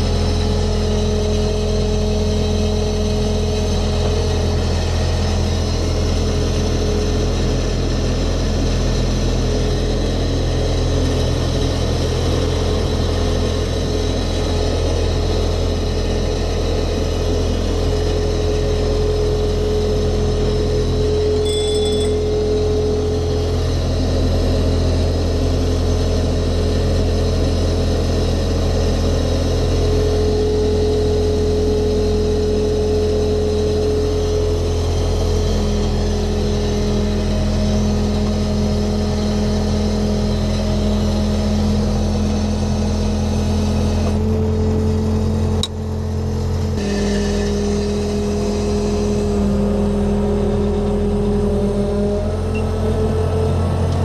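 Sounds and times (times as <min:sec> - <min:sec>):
diesel engine running: 0:00.0 - 0:54.0
brief high tone: 0:21.4 - 0:22.6.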